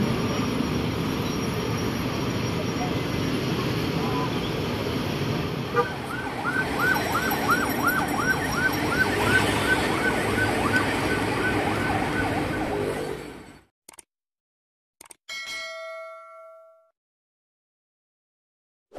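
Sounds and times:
traffic noise: 0.0s - 13.7s
yelping siren: 5.8s - 13.1s.

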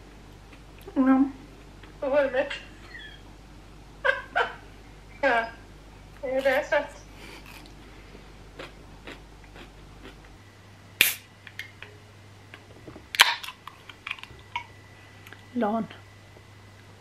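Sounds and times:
can ring-pull crack with hiss: 11.0s - 11.3s.

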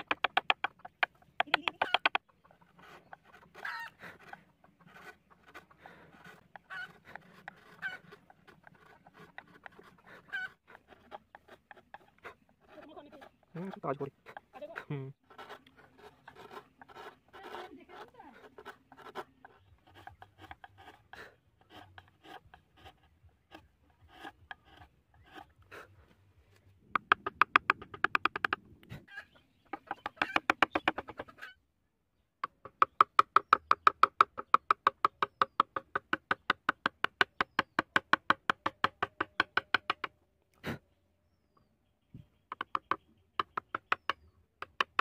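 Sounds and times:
chisel scraping wood: 0.0s - 28.6s, 29.7s - 31.5s, 32.4s - 40.8s
quick chisel taps: 27.0s - 28.6s, 42.1s - 45.0s.

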